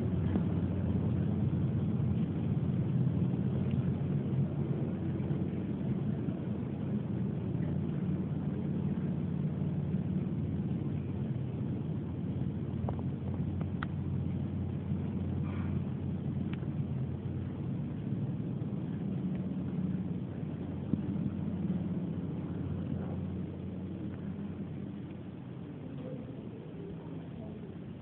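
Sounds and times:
low mechanical hum: 0.0s - 28.0s
faint clicks: 12.7s - 14.0s, 15.2s - 16.8s.

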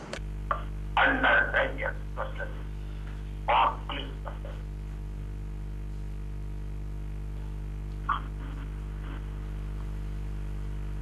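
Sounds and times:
electrical mains hum: 0.0s - 11.0s
faint voice: 0.5s - 2.7s, 3.5s - 4.6s.

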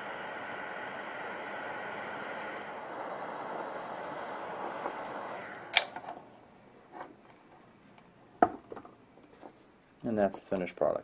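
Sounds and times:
heat gun blowing air: 0.0s - 6.0s.

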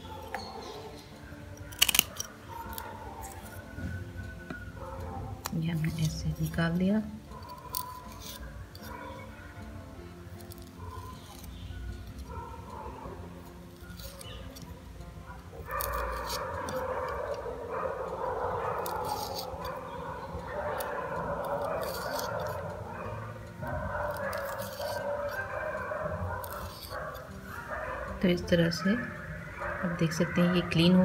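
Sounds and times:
continuous background noise: 0.0s - 31.0s
knife scraping pod skin: 1.6s - 3.6s, 5.4s - 9.2s, 10.4s - 12.3s, 13.4s - 14.8s, 15.6s - 17.4s, 18.7s - 19.9s, 20.8s - 22.7s, 24.1s - 27.7s.

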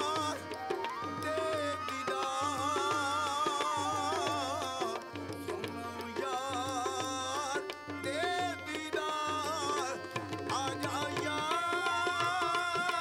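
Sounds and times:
flute melody: 0.0s - 4.6s.

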